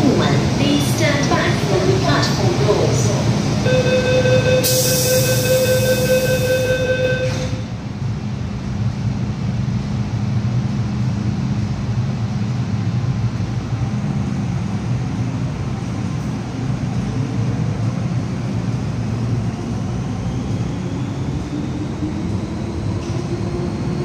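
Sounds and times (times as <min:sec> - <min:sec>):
electric train humming: 0:00.0 - 0:24.0
door-closing warning tone: 0:03.6 - 0:07.7.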